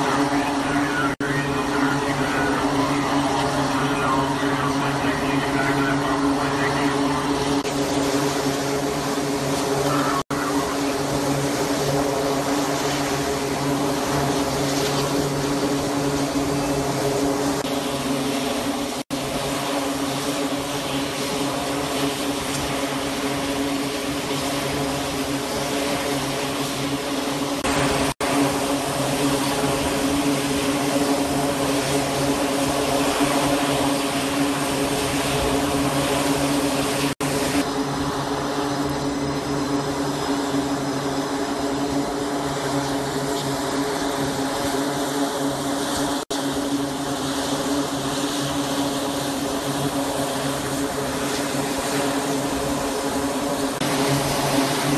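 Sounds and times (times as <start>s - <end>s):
steady mechanical hum: 0.0s - 54.9s.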